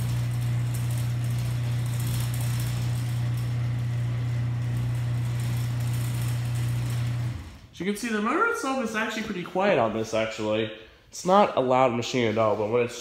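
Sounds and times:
garage door opener motor hum: 0:00.0 - 0:07.7.

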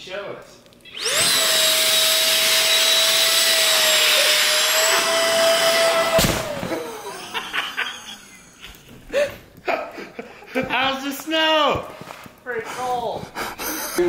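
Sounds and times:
sharp thud: 0:06.1 - 0:06.8.

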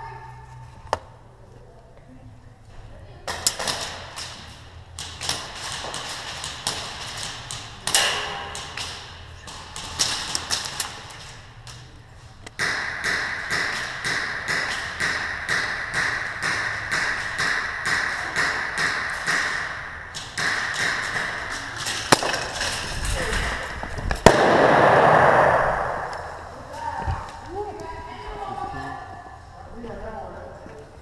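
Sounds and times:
pellets striking: 0:12.6 - 0:26.5.

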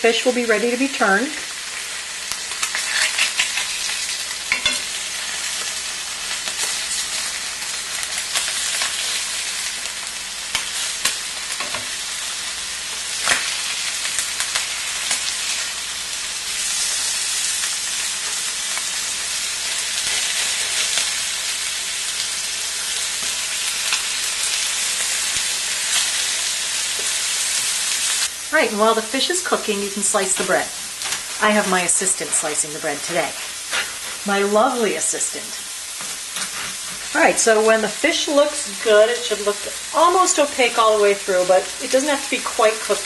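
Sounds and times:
fish sizzling in frying pan: 0:00.0 - 0:43.0
spatula scraping and tapping: 0:36.0 - 0:37.2.

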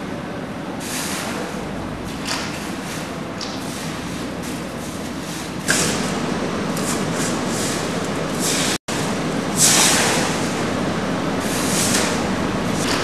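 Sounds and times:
rumbling rushing roar: 0:05.7 - 0:13.0.

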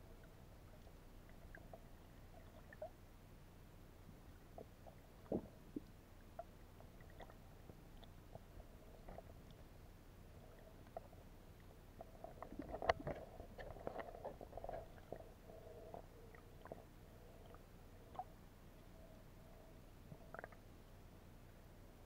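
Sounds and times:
underwater rumbling: 0:04.2 - 0:20.7
underwater clicks and pops: 0:12.4 - 0:15.0.

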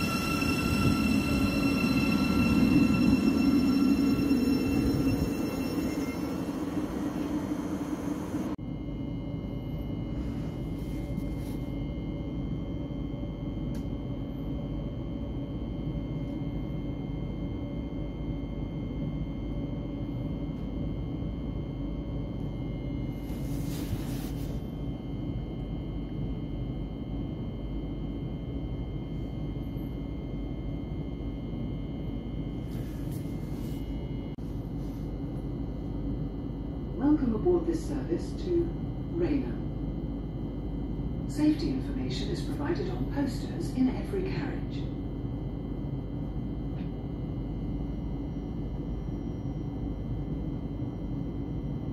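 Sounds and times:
low rumble: 0:00.0 - 0:08.6
whining tones: 0:00.0 - 0:08.6
train electrical hum: 0:00.0 - 0:51.9
ventilation drone: 0:00.0 - 0:51.9.

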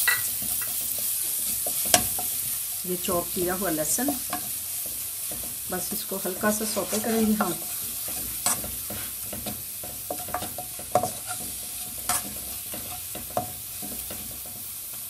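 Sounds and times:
garlic sizzling in oil: 0:00.0 - 0:15.0
ladle scraping and knocking pan: 0:06.4 - 0:14.7.

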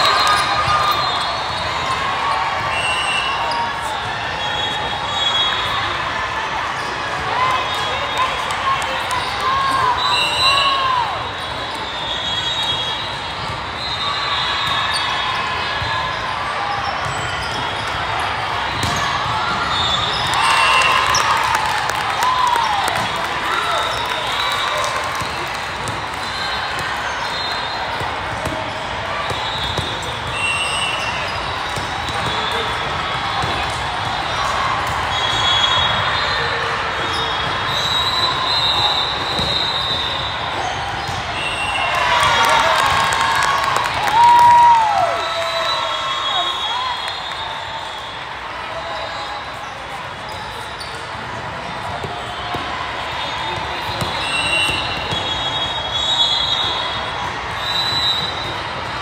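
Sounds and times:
chatter and shouts of people: 0:00.0 - 0:59.0
echoing crowd noise: 0:00.0 - 0:59.0
volleyballs being hit and bouncing: 0:27.9 - 0:36.7, 0:39.1 - 0:41.4, 0:53.5 - 0:55.6.

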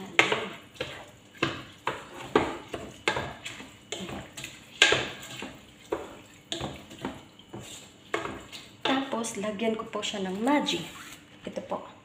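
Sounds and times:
wooden spoon knocking a pot: 0:00.0 - 0:09.2.

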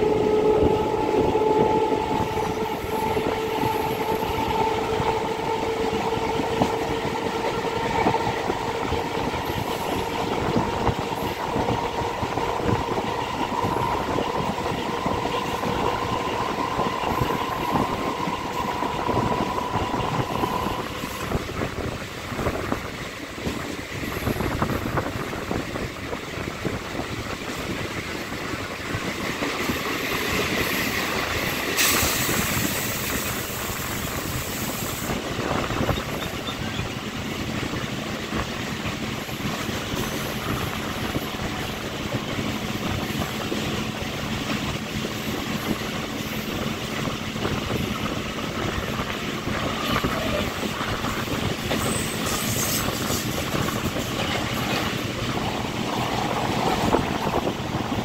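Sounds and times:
train motor whine: 0:00.0 - 0:22.8
train wheels rattling over rails: 0:00.0 - 0:58.0.

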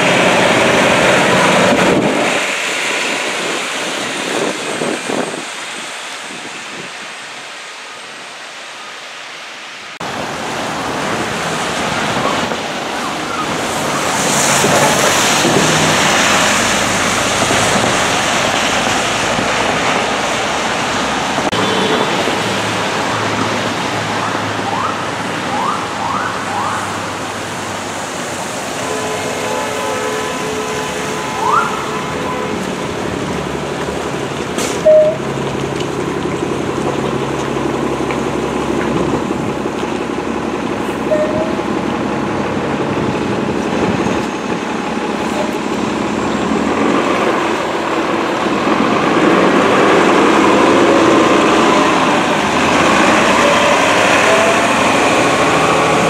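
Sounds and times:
tyres hissing on wet pavement: 0:00.0 - 0:56.0.

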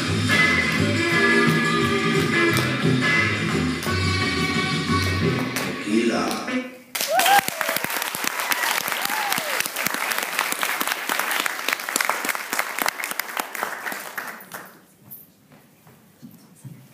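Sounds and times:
audience applauding: 0:06.9 - 0:14.8
whooping cheer: 0:07.0 - 0:09.8.

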